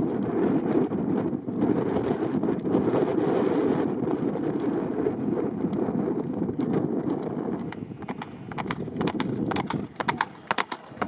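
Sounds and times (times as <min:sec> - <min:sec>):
wind on microphone: 0:00.0 - 0:11.0
galloping horse hoofbeats: 0:04.5 - 0:11.0.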